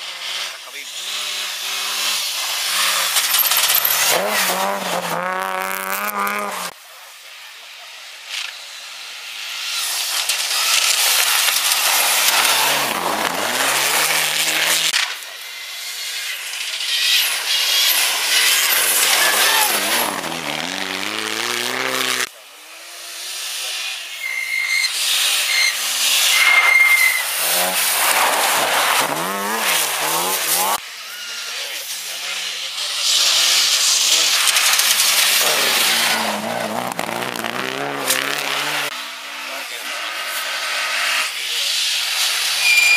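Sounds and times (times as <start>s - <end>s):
rally cars accelerating past: 1.2s - 6.7s, 10.6s - 15.0s, 17.0s - 23.7s, 25.2s - 30.8s, 33.3s - 41.4s.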